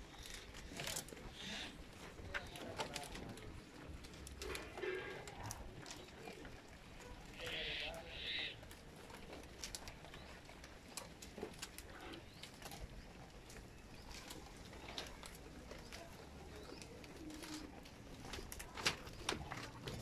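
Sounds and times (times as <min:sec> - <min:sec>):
goats snapping and tearing stems: 0:08.6 - 0:20.0.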